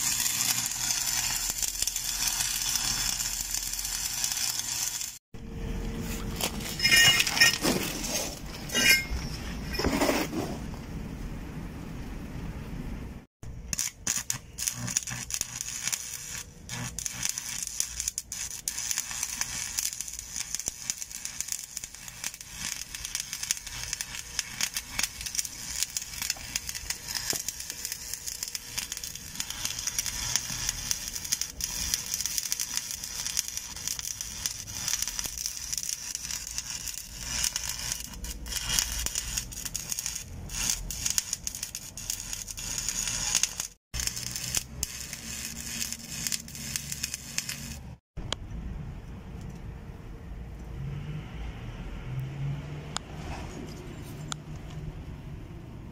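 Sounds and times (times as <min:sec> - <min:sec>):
welding arc crackling: 0:00.0 - 0:05.2, 0:13.5 - 0:48.0.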